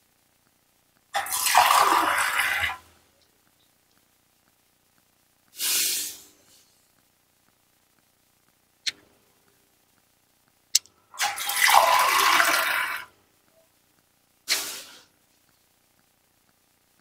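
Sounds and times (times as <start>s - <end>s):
water pouring: 1.2s - 2.8s, 11.2s - 13.1s.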